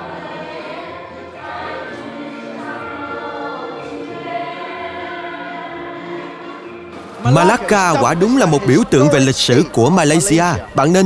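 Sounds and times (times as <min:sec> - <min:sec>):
group singing in chorus: 0:00.0 - 0:09.4.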